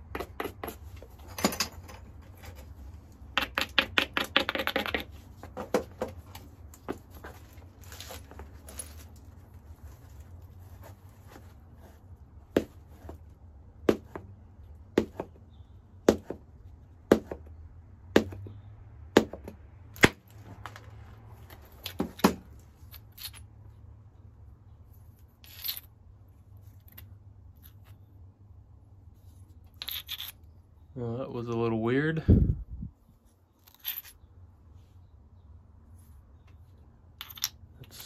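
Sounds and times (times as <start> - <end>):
stone piece rustling when handled: 29.2 - 30.5.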